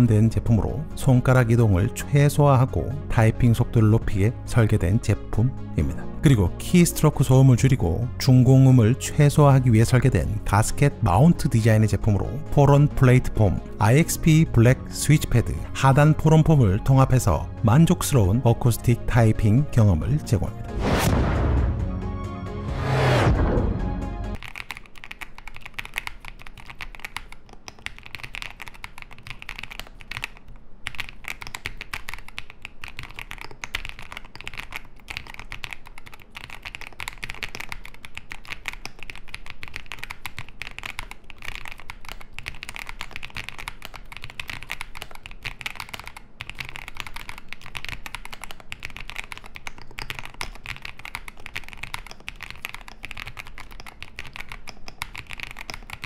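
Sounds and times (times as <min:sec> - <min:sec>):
mechanical keyboard typing: 0:24.4 - 0:56.0.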